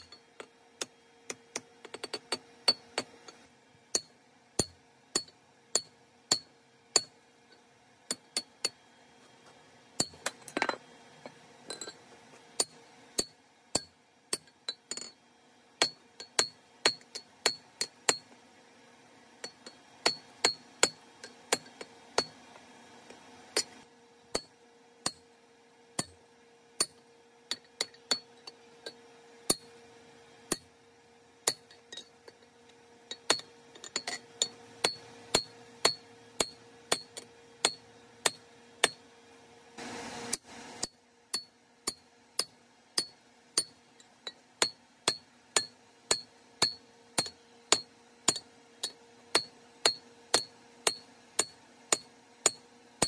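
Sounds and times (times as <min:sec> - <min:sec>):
hammer striking hot metal: 0:00.0 - 0:07.2, 0:10.0 - 0:10.7, 0:12.6 - 0:15.1, 0:15.8 - 0:18.3, 0:19.4 - 0:22.4, 0:23.6 - 0:25.2, 0:26.0 - 0:26.2, 0:30.5 - 0:30.7, 0:31.4 - 0:32.1, 0:33.1 - 0:39.0, 0:40.3 - 0:52.7.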